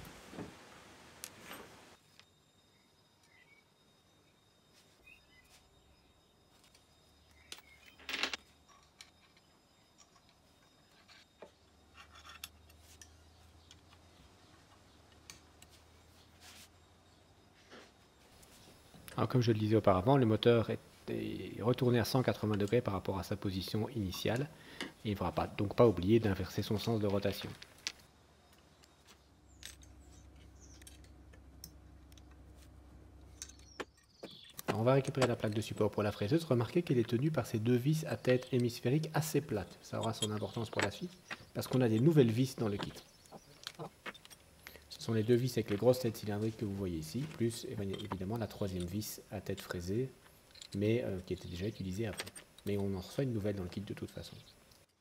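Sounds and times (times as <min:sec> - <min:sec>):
faint low hum: 0:00.0 - 0:54.9
metal parts clicking and tapping: 0:06.6 - 0:15.8, 0:21.7 - 0:25.8, 0:26.4 - 0:32.6, 0:33.2 - 0:52.9.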